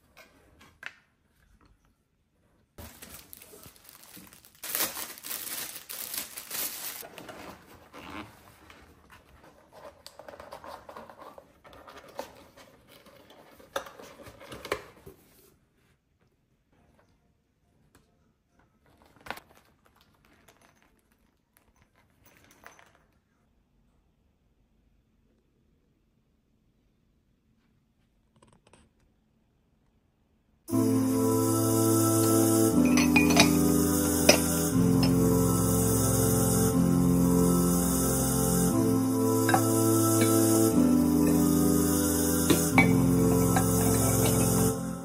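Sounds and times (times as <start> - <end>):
plastic packaging crinkling: 2.8 - 8.1.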